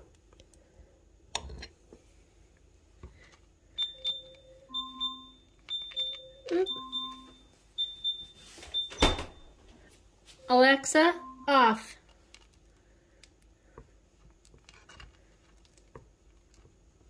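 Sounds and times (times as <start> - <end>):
smart speaker electronic chime: 3.8 - 9.1, 10.4 - 11.8.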